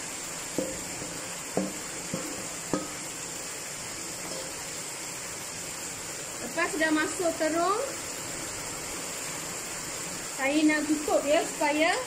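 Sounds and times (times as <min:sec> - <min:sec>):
steady hiss: 0:00.0 - 0:12.0
spatula knocking against pot: 0:00.6 - 0:03.0.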